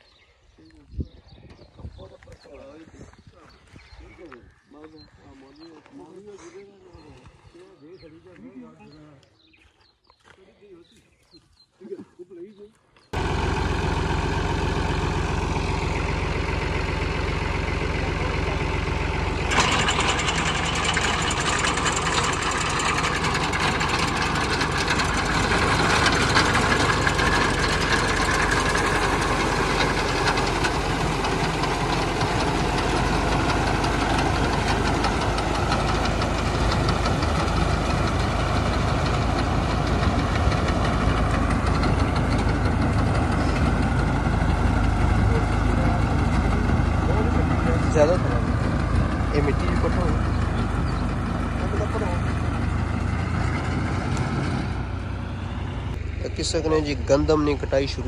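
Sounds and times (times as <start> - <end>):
tractor diesel engine running: 13.1 - 58.0.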